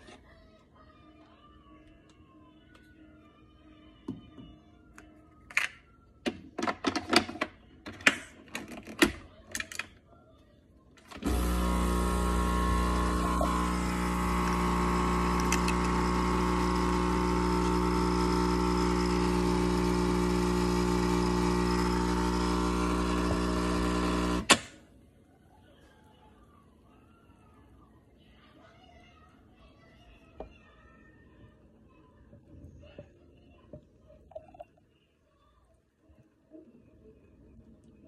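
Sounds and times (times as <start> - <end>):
coffee machine pump humming: 11.1 - 24.6.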